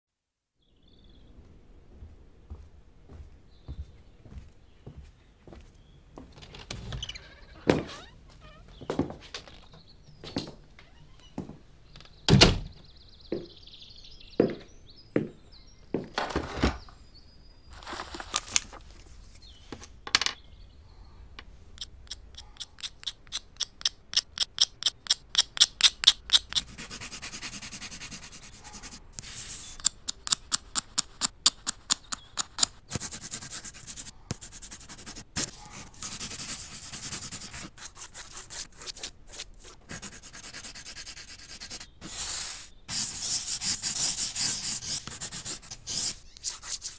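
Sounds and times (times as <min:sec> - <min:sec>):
blade shaving pencil: 0:21.8 - 0:46.9
pencil scratching on paper: 0:21.8 - 0:46.9.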